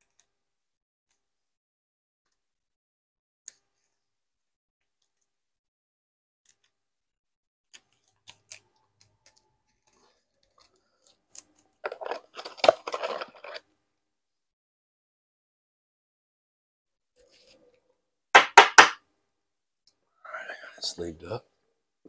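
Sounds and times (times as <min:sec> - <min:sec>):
plastic crinkling: 0:11.9 - 0:13.6.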